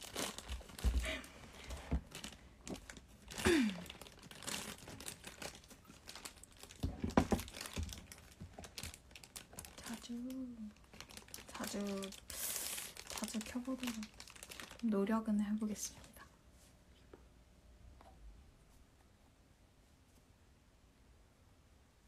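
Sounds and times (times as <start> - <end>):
snack wrapper crinkling: 0.0 - 1.0, 2.1 - 14.9.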